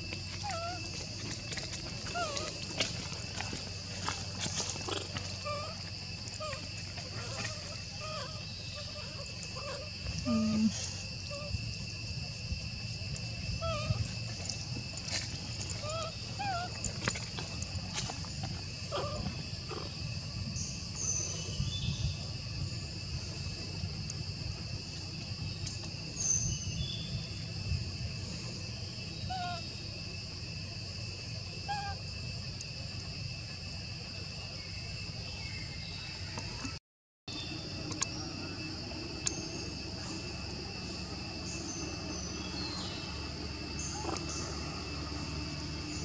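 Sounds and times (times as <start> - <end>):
insects buzzing: 0.0 - 46.0.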